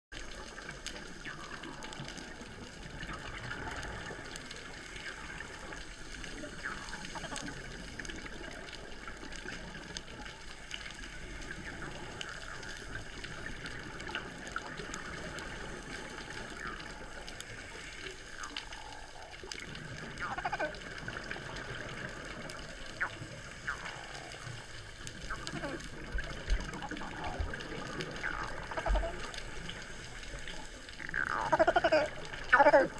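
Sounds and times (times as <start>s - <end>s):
crackle of small clicks: 0.1s - 32.9s
underwater bubbles gushing: 0.2s - 32.9s.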